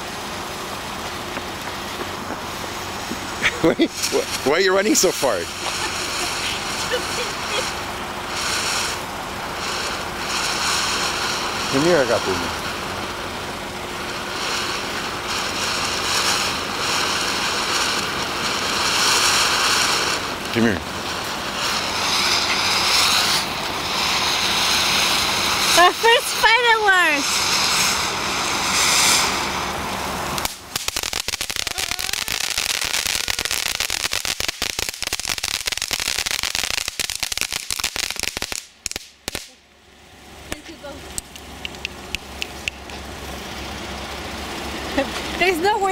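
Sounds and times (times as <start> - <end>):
firework fountain hissing: 0.0 - 45.9.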